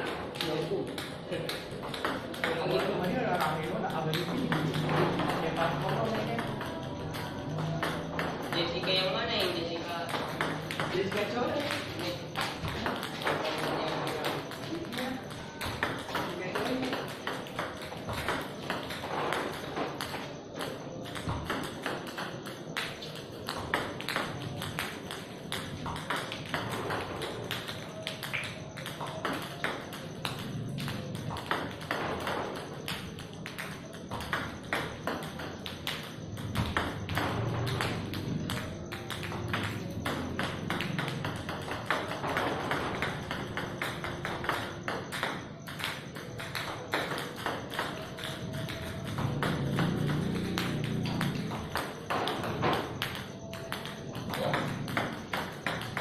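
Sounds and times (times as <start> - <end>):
table tennis balls bouncing: 0.0 - 56.0
table tennis balls clicking off paddle: 0.0 - 56.0.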